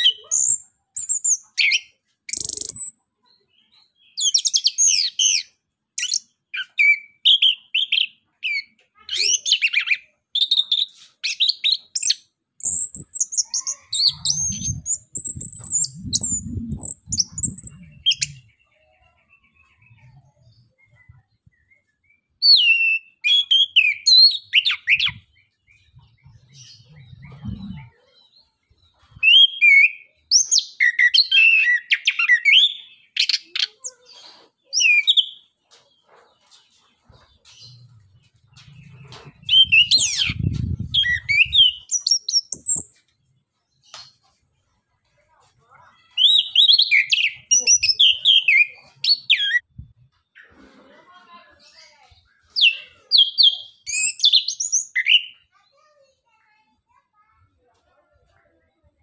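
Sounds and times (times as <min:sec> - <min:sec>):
bird singing high chirps: 0:00.0 - 0:35.6, 0:37.0 - 0:43.0, 0:46.0 - 0:50.5, 0:51.6 - 0:55.5
low rumble: 0:14.3 - 0:18.5, 0:26.0 - 0:27.9, 0:38.0 - 0:41.6.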